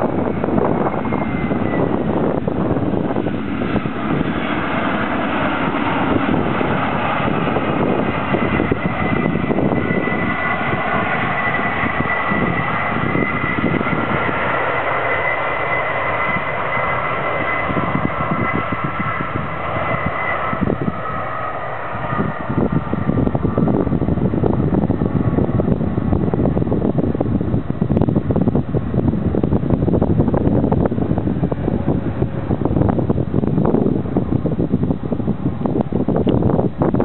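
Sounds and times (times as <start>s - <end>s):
jet engines whining and rumbling: 0.0s - 37.0s.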